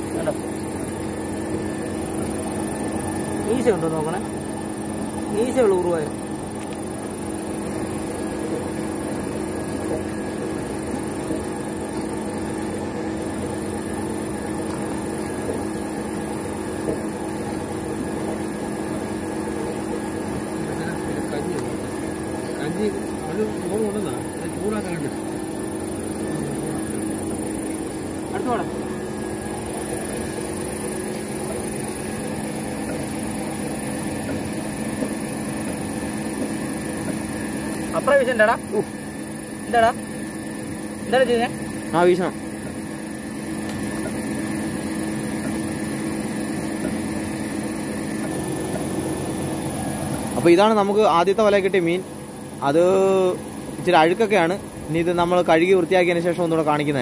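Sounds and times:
electric pump motor humming: 0.0s - 57.0s.

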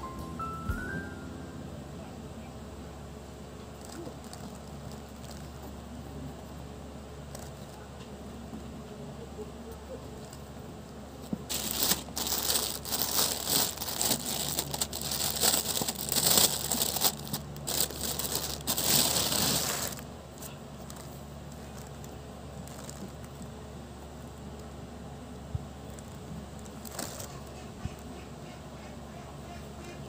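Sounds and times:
plastic packaging crinkling: 3.8s - 5.6s, 11.2s - 23.5s, 25.9s - 27.6s.

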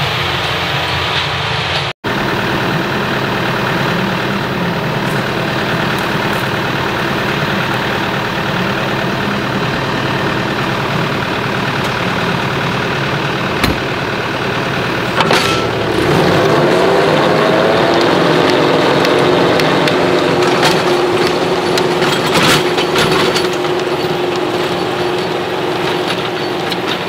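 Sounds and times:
tractor diesel engine idling: 0.0s - 27.0s
cab door shutting clunk: 13.5s - 14.1s.

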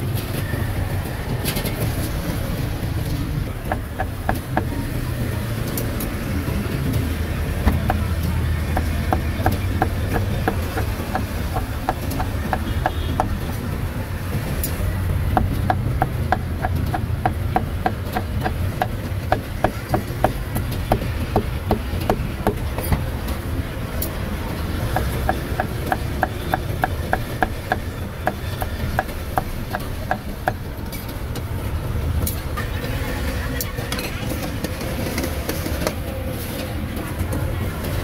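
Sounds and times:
cleaver chopping on wooden block: 8.7s - 13.5s, 15.3s - 22.6s, 24.9s - 30.6s.

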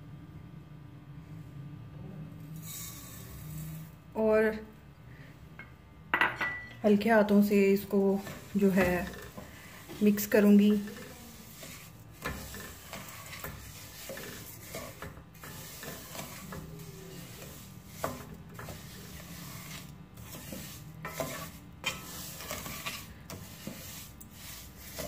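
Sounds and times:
spatula stirring and scraping pot: 2.6s - 4.1s, 6.9s - 25.0s.

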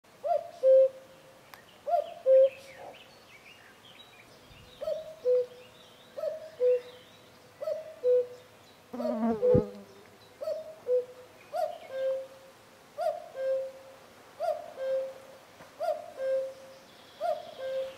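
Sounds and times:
cuckoo calling: 0.2s - 1.0s, 1.8s - 3.0s, 4.8s - 5.6s, 6.2s - 8.4s, 10.4s - 12.4s, 13.0s - 15.2s, 15.8s - 17.9s
small birds chirping: 1.2s - 12.2s, 15.8s - 17.9s.

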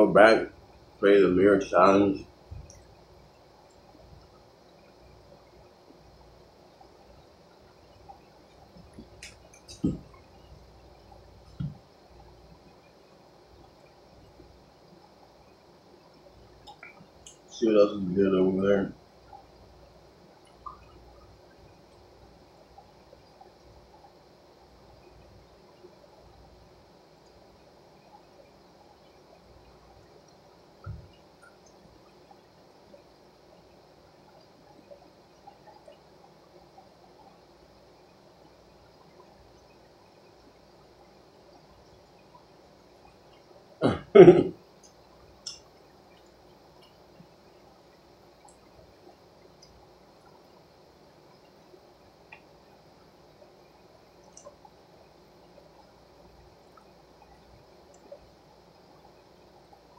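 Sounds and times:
low steady hum: 0.0s - 59.9s
man coughing: 43.8s - 44.5s.

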